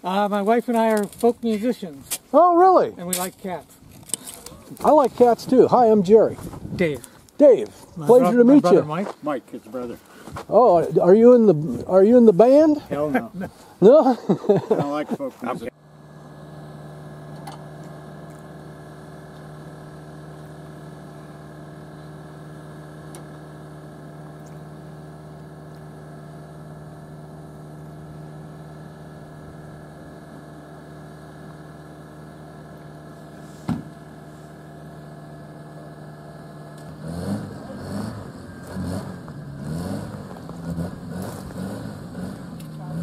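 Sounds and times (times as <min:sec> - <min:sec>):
vehicle engine idling: 0:04.3 - 0:43.0
short knock: 0:33.7 - 0:33.9.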